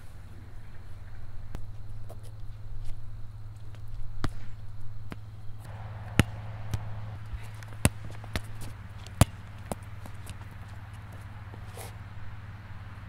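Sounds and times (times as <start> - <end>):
steady low hum: 0.0 - 13.0
ball bouncing on asphalt: 3.6 - 12.1.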